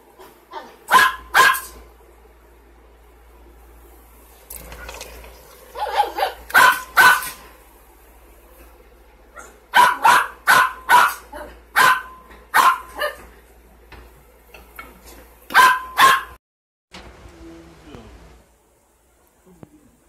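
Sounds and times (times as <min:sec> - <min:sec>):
dog barking: 0:00.6 - 0:01.8, 0:05.8 - 0:07.4, 0:09.4 - 0:13.2, 0:15.5 - 0:16.4.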